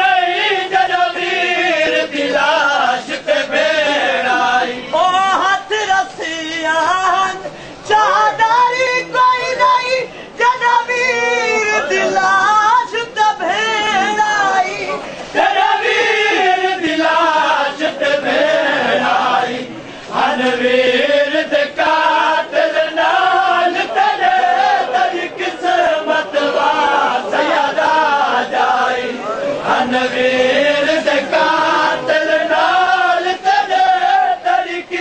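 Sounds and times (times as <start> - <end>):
men chanting a lament: 0.0 - 35.0.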